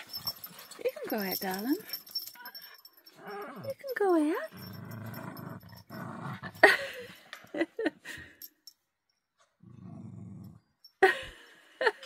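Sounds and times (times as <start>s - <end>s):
dog growling: 3.1s - 3.8s, 4.5s - 6.7s, 9.6s - 10.6s.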